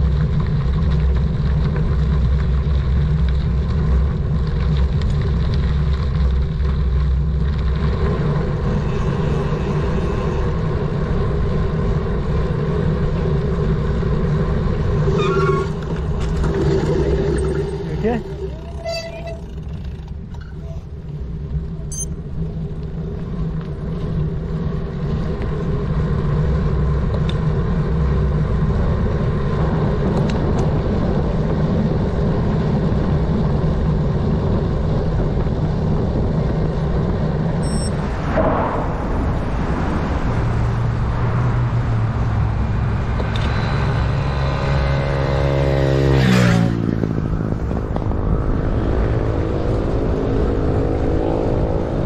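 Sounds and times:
bicycle riding rumble: 0:00.0 - 0:52.0
wind on microphone: 0:25.2 - 0:52.0
pitched whine: 0:37.5 - 0:44.9.

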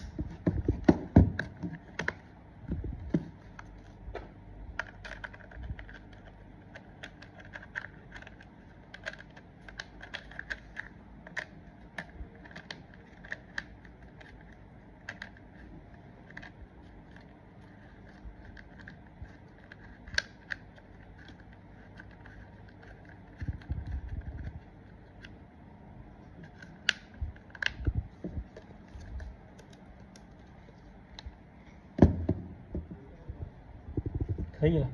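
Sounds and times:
small clicks and rattles: 0:04.8 - 0:25.3
short low rumble: 0:32.6 - 0:34.7.

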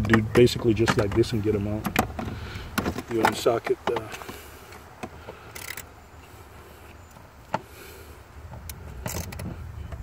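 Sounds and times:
socket ratchet clicking: 0:05.5 - 0:05.9, 0:08.6 - 0:09.5.

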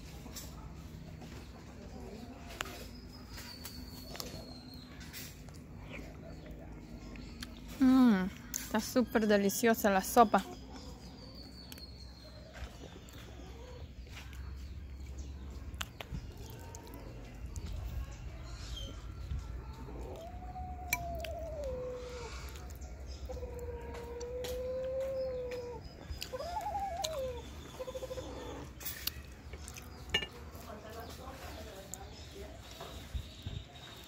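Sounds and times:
spoon clinking on ceramic bowl: 0:30.1 - 0:30.4.

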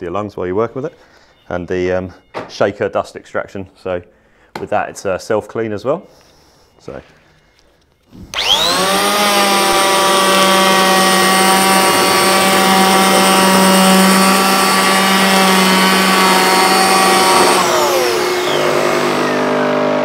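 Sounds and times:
electric planer whining: 0:08.1 - 0:20.0
dust extractor humming: 0:08.3 - 0:20.0.

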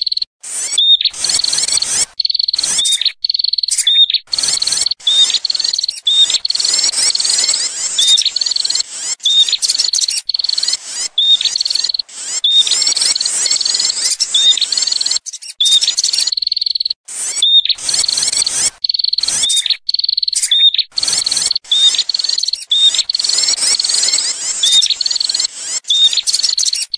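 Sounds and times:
bird chattering high-pitched: 0:00.0 - 0:26.9.

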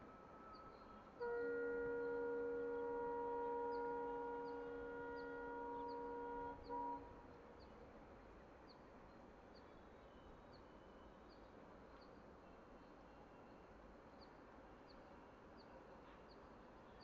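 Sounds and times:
locomotive air horn: 0:00.0 - 0:07.2
faint outdoor background: 0:00.0 - 0:17.0.

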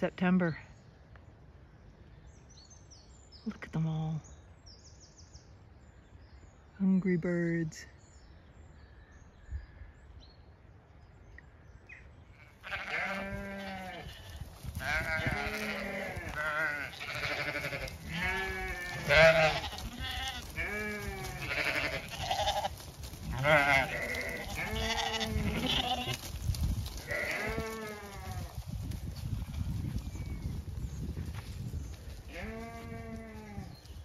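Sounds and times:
sheep bleating: 0:12.3 - 0:26.2, 0:27.0 - 0:28.5, 0:32.3 - 0:33.7.

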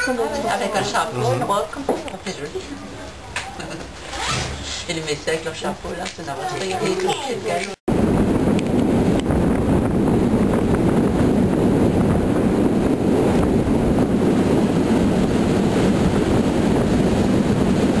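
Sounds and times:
wind on microphone: 0:07.7 - 0:18.0.

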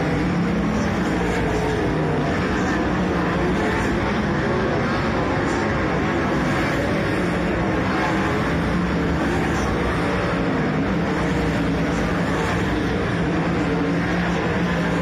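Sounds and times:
race car engine running hard: 0:00.0 - 0:15.0.

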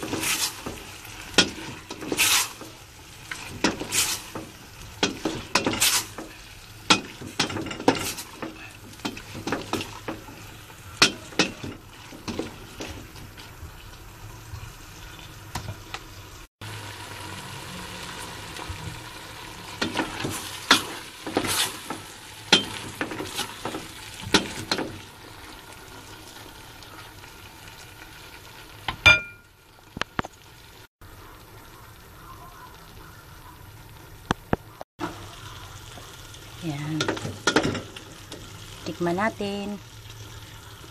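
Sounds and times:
utensil scraping a metal pan: 0:00.0 - 0:10.3
food sizzling in a pan: 0:00.0 - 0:40.9
ringing clink: 0:29.1 - 0:29.5.

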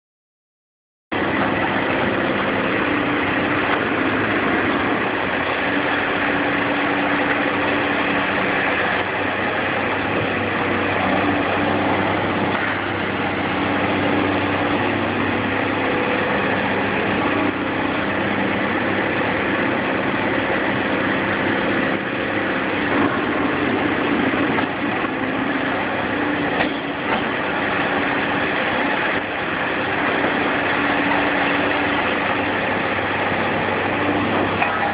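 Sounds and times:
excavator diesel engine running: 0:01.1 - 0:34.9.

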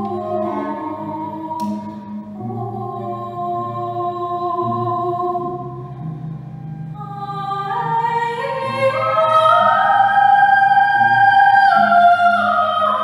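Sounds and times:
woman singing operatic notes: 0:00.0 - 0:06.0, 0:06.8 - 0:13.0
bowed cello: 0:00.0 - 0:13.0.

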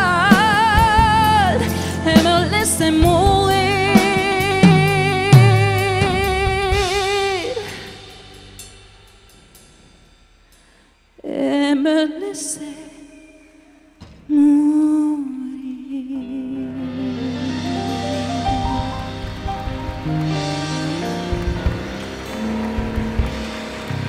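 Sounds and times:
woman singing with vibrato: 0:00.0 - 0:07.9, 0:11.2 - 0:13.7, 0:14.3 - 0:19.5, 0:20.3 - 0:22.6
live band playing: 0:00.0 - 0:08.7, 0:16.6 - 0:24.0.

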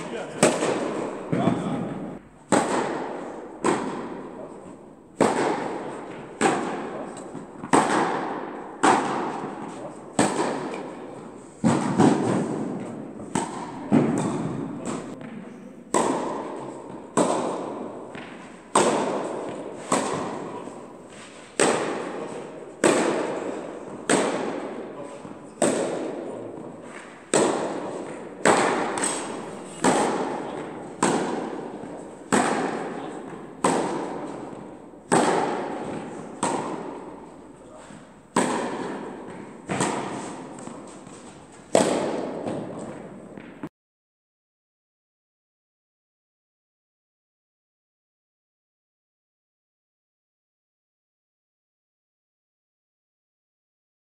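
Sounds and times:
tennis ball hit by rackets: 0:00.0 - 0:43.7.

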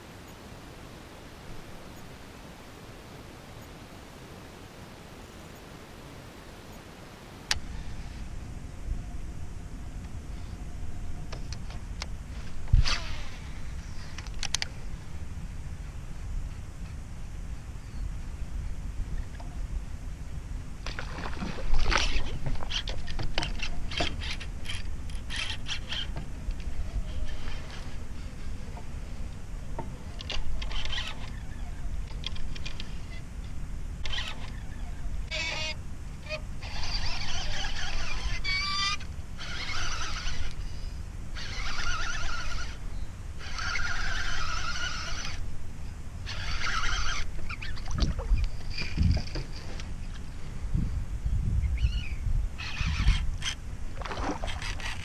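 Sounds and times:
fishing reel clicking: 0:30.2 - 0:31.4, 0:36.7 - 0:40.7, 0:41.4 - 0:42.8, 0:43.4 - 0:45.4, 0:46.3 - 0:47.8.

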